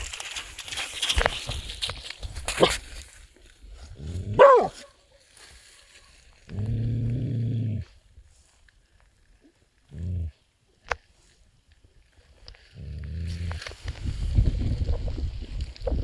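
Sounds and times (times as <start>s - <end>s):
puppy low moan: 6.5s - 8.0s.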